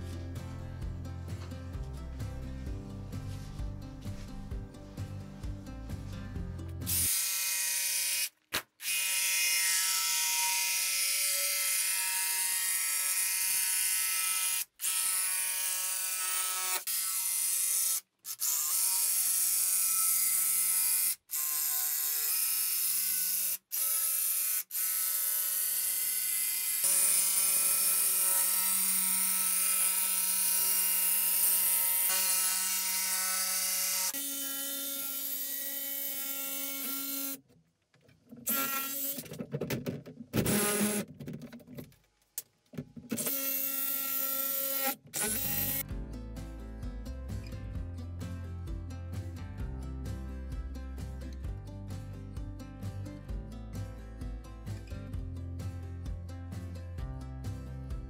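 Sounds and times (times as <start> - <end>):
jigsaw cutting plywood: 20.4 - 37.4, 40.3 - 41.1, 43.1 - 45.8.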